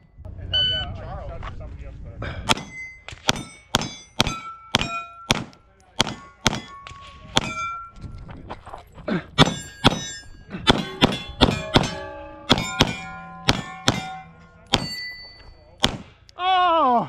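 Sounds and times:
ringing steel targets: 0:02.4 - 0:08.2, 0:09.4 - 0:16.3
pistol shots: 0:02.5 - 0:06.8, 0:09.4 - 0:10.1, 0:10.7 - 0:11.9, 0:12.5 - 0:15.0, 0:15.8 - 0:16.3.

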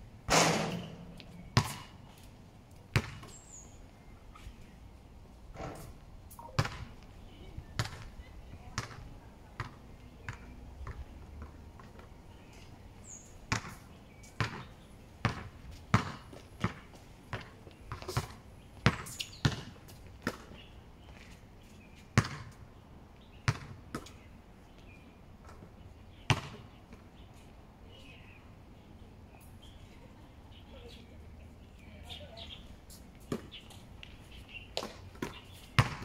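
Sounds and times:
basketball bouncing on hard court: 0:01.6 - 0:01.9, 0:02.9 - 0:03.3, 0:06.6 - 0:06.8, 0:13.5 - 0:13.8, 0:14.4 - 0:14.6, 0:15.2 - 0:20.4, 0:35.2 - 0:36.0.

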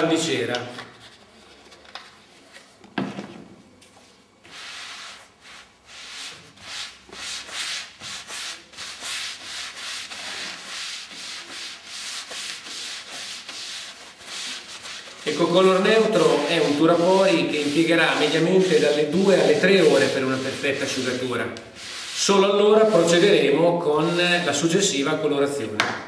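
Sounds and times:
pad rubbing over a panel: 0:04.5 - 0:24.5.

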